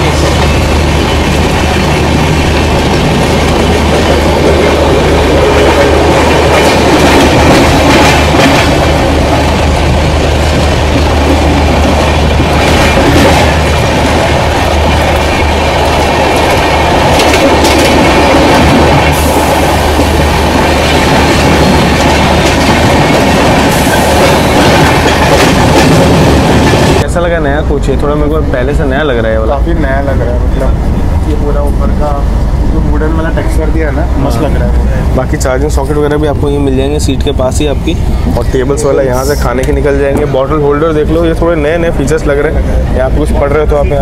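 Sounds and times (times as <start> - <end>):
clickety-clack over rail joints: 0.0 - 27.0
train wheels rumbling on rail: 0.0 - 44.0.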